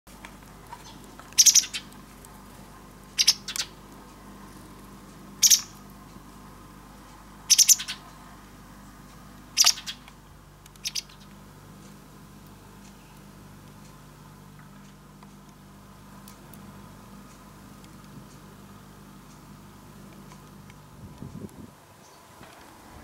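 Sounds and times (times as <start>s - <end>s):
bird calling: 0.7s - 2.0s, 3.2s - 3.8s, 5.4s - 5.8s, 7.5s - 8.1s, 9.6s - 10.1s, 10.8s - 11.4s.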